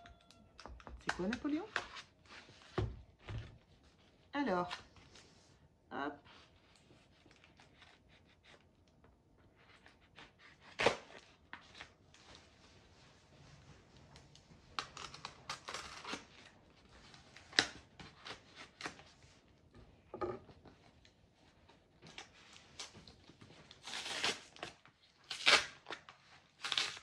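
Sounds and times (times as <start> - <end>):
cardboard and tape tearing: 9.8 - 11.9, 14.8 - 16.5, 23.7 - 27.0.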